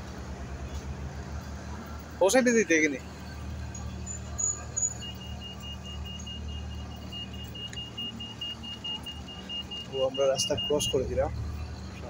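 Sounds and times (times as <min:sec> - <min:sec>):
traffic hum: 0:00.0 - 0:12.0
crossing signal beeping rapidly: 0:03.2 - 0:12.0.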